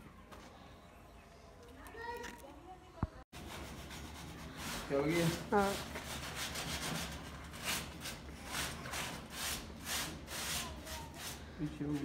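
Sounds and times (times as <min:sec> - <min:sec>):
sandpaper scraping metal grille: 0:03.4 - 0:12.0.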